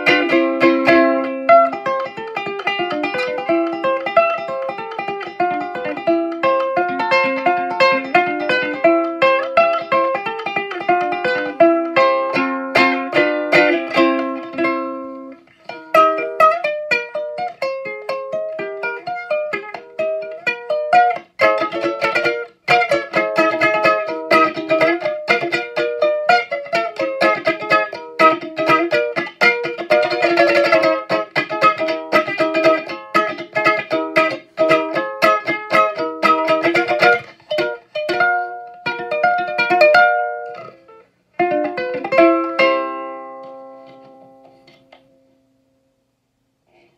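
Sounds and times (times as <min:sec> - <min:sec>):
ukulele plucking and strumming: 0:00.0 - 0:45.6.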